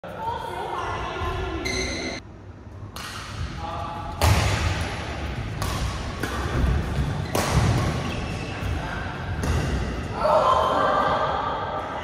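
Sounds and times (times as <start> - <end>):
rackets striking shuttlecock: 4.1 - 8.2.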